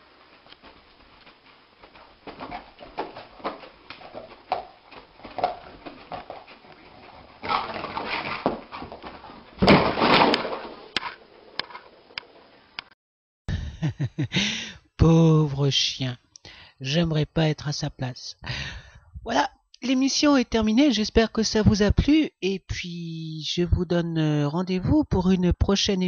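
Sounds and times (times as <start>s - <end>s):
dog scrabbling and thumping: 0.3s - 11.9s.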